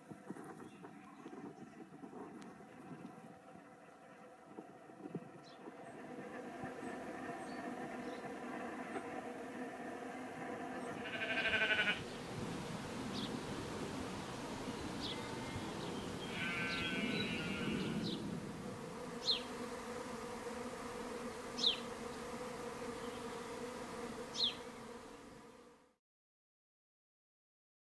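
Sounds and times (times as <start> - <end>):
bees humming: 2.5 - 25.9
animal calls: 10.8 - 12.1, 14.9 - 18.2.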